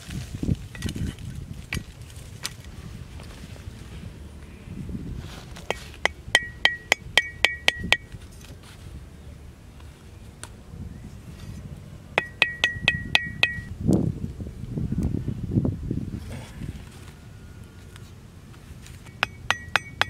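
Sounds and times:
metal knife blade tapping: 0:06.0 - 0:08.0, 0:12.2 - 0:13.7, 0:19.1 - 0:20.0.

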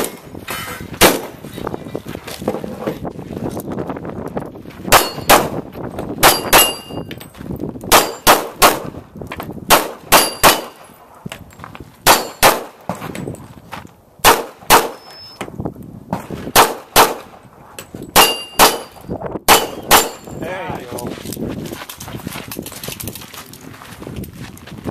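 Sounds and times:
metallic ring of steel targets: 0:04.9 - 0:05.4, 0:06.2 - 0:07.1, 0:10.1 - 0:10.9, 0:18.0 - 0:20.6
pistol shots: 0:04.9 - 0:05.6, 0:06.2 - 0:06.9, 0:07.9 - 0:09.0, 0:09.7 - 0:10.8, 0:12.0 - 0:12.9, 0:14.2 - 0:15.2, 0:16.5 - 0:17.3, 0:18.2 - 0:20.3.

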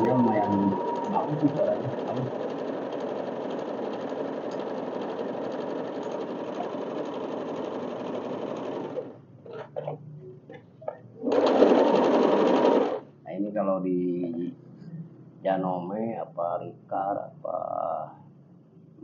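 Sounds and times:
sewing machine stitching: 0:00.0 - 0:10.0, 0:11.2 - 0:13.0.

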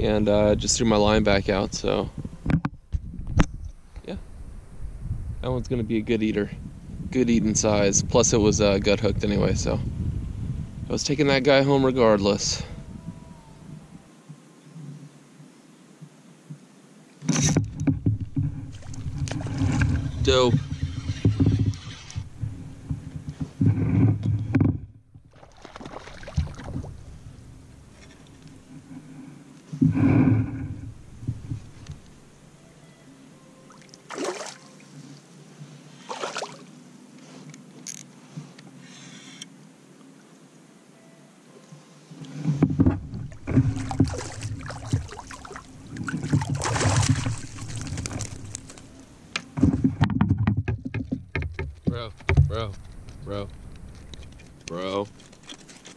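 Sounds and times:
bumps and rumble from kayak: 0:00.0 - 0:14.0, 0:17.2 - 0:32.5, 0:42.3 - 0:55.9
water sloshing: 0:17.6 - 0:23.4, 0:25.2 - 0:29.1, 0:33.6 - 0:35.1, 0:36.0 - 0:36.7, 0:42.8 - 0:55.9
fishing gear being handled: 0:42.3 - 0:55.9.

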